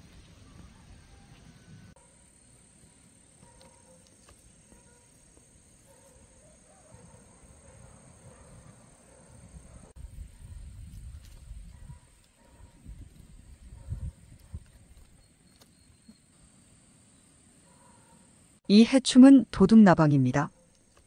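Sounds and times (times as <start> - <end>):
wind on microphone: 9.7 - 15.1.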